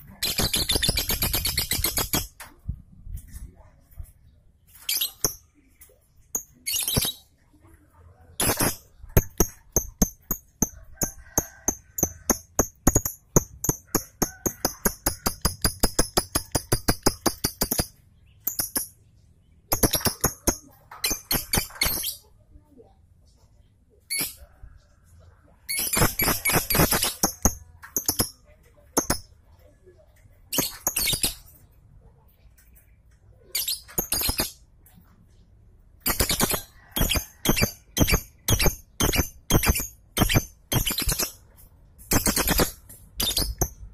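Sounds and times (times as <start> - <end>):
lovebird chirping: 0.0 - 2.4, 4.7 - 7.4, 8.4 - 22.3, 42.1 - 43.9
lovebirds chirping: 0.0 - 2.4, 32.4 - 43.9.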